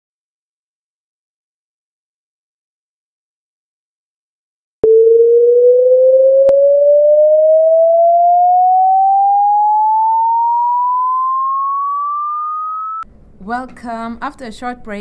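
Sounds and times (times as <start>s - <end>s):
rising electronic tone: 4.8s - 13.0s.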